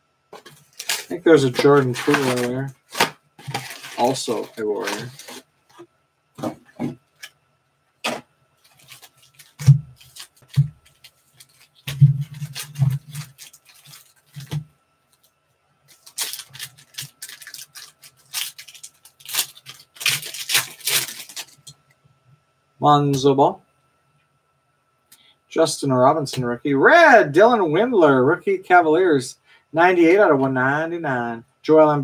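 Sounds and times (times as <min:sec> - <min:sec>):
foil wrappers crinkling and tearing: 0:00.4 - 0:05.8, 0:08.0 - 0:15.3, 0:15.9 - 0:21.7.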